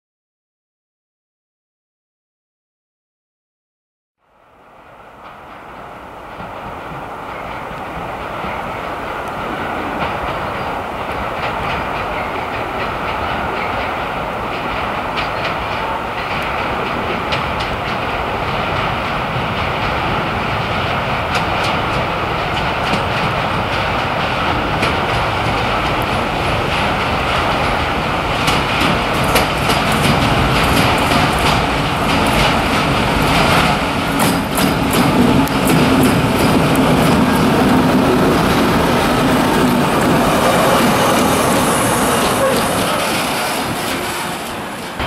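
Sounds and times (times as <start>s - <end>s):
train wheels clicking over rails: 5.0s - 45.0s
diesel locomotive engine running: 23.6s - 45.0s.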